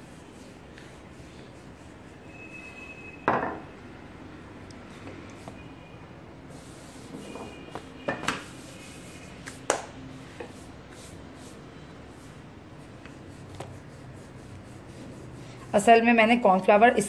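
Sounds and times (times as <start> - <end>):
hands pressing fondant: 6.7 - 11.5, 12.1 - 15.8.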